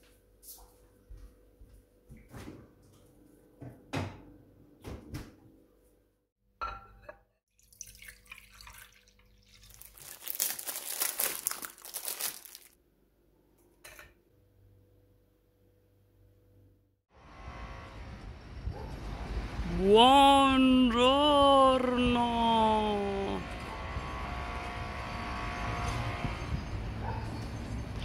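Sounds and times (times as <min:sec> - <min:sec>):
ceramic tableware knocks: 0:06.6 - 0:07.2
liquid pouring into ceramic bowl: 0:07.5 - 0:10.2.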